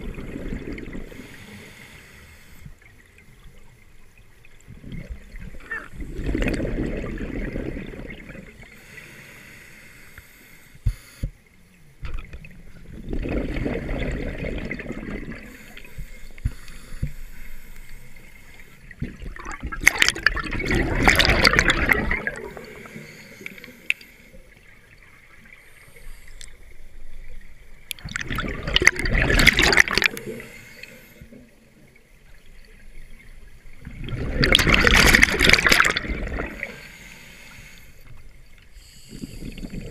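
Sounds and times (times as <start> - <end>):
scuba regulator exhaust bubbling: 0.0 - 1.9, 4.7 - 8.6, 12.8 - 24.0, 27.9 - 31.5, 33.7 - 36.9, 38.8 - 39.9.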